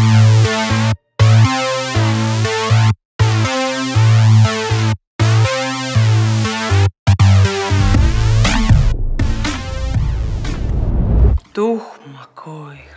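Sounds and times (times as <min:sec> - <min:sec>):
electronic music with deep bass: 0:07.2 - 0:11.4.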